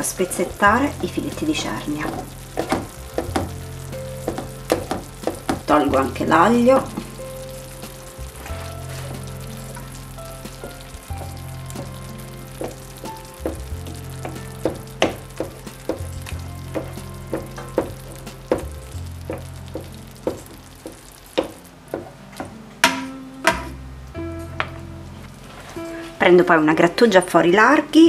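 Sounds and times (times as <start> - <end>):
fish sizzling in oil: 0.0 - 24.5
spatula tapping and scraping pan: 2.1 - 3.6, 4.2 - 6.1, 12.6 - 12.8, 13.4 - 23.8.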